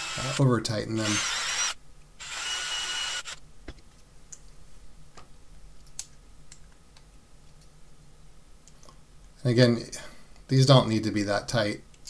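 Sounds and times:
cordless drill driving screws: 0:00.0 - 0:00.4, 0:01.0 - 0:03.4.

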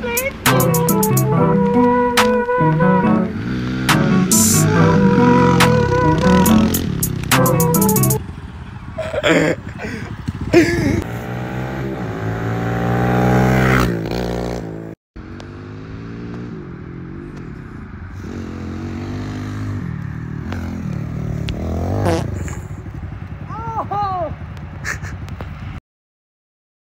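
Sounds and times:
small motorbike engine revving: 0:00.0 - 0:09.4, 0:10.1 - 0:17.2, 0:18.2 - 0:22.8.

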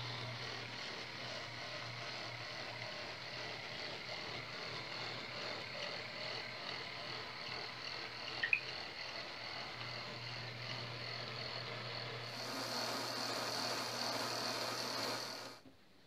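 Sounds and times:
model train cars rolling: 0:12.3 - 0:15.6.

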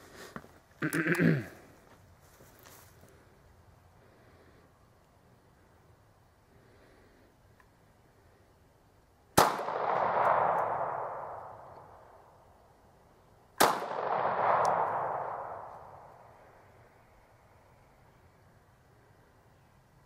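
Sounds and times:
pistol shots with echoing rumble: 0:09.4 - 0:12.2, 0:13.6 - 0:16.3.

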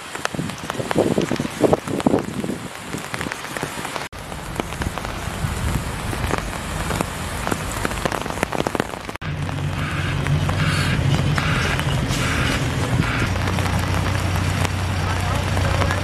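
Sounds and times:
rain pattering: 0:00.0 - 0:16.0
low engine hum: 0:09.2 - 0:16.0.

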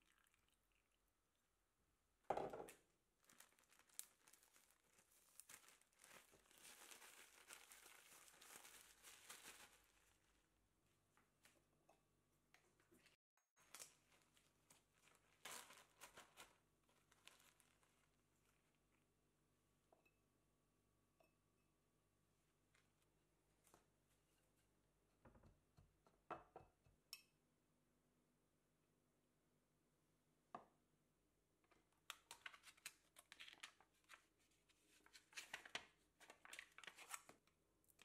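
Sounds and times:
plastic bag crinkling: 0:03.2 - 0:10.4, 0:13.6 - 0:18.6.

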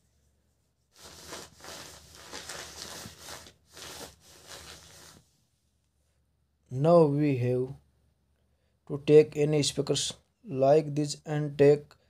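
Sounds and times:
rustling and rubbing of small parts: 0:00.9 - 0:05.3.

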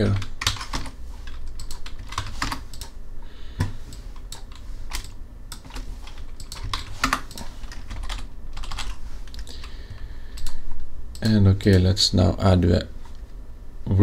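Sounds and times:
computer keyboard keystrokes: 0:00.0 - 0:03.0, 0:03.6 - 0:09.8
faint low hum: 0:00.0 - 0:14.0.

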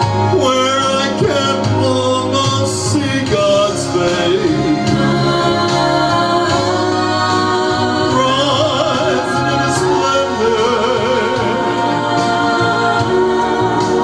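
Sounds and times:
backing music: 0:00.0 - 0:14.0
man singing country song: 0:00.3 - 0:05.0, 0:08.1 - 0:11.6.

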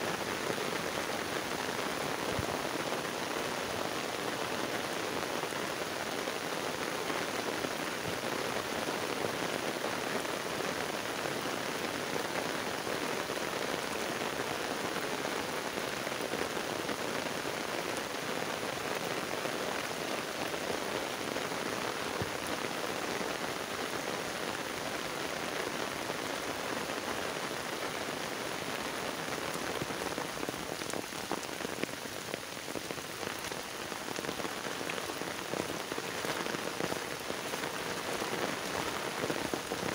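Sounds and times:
heavy rain on standing water: 0:00.0 - 0:39.9.

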